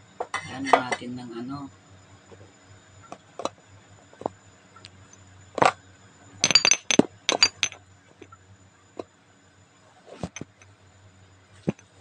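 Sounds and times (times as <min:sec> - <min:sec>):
dishes clinking and knocking: 0:06.4 - 0:07.8, 0:10.2 - 0:10.6.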